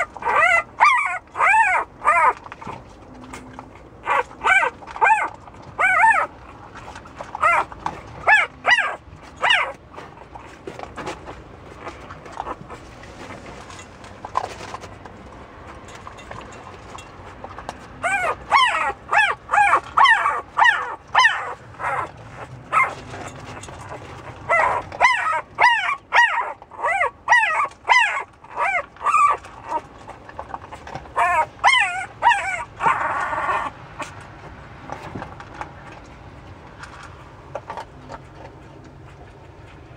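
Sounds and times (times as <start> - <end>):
puppy crying in high yelps: 0.0 - 2.8, 4.0 - 6.6, 7.3 - 9.8, 18.0 - 30.2, 31.1 - 34.2.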